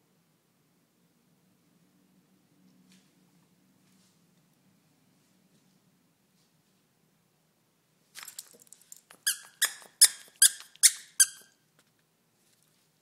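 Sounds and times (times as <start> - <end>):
dog toy squeaking: 9.1 - 11.6.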